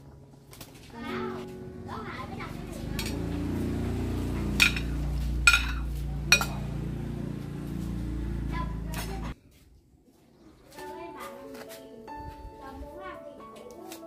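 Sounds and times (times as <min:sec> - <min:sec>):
ceramic bowl clinking on pot rim: 0:04.6 - 0:06.7.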